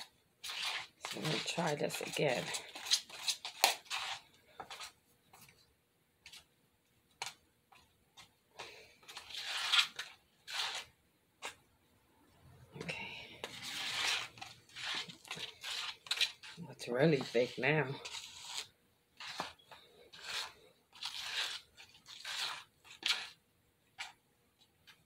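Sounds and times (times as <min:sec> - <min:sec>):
spoon scraping plastic bowl: 0:00.0 - 0:05.5, 0:08.6 - 0:11.6, 0:12.9 - 0:24.2.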